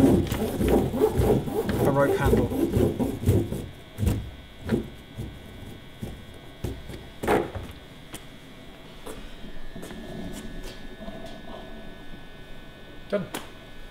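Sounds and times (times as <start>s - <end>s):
rope rubbing and knocking on deck: 0.0s - 7.8s
faint steady hum: 0.0s - 13.9s.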